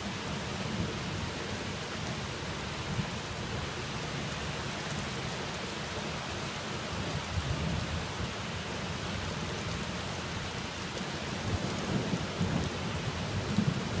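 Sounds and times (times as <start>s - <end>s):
steady rain: 0.0s - 14.0s.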